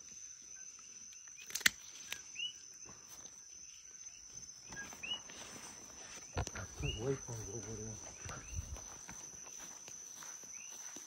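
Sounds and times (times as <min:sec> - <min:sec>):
cricket-like insect drone: 0:00.0 - 0:11.0
sharp click: 0:01.4 - 0:02.2.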